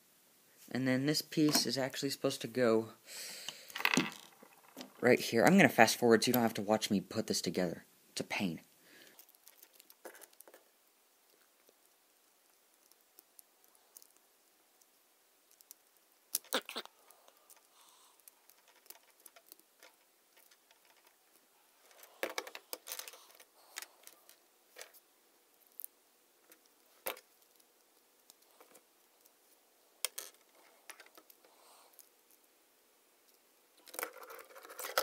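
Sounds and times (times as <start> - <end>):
plastic parts clicking together: 33.8 - 35.0.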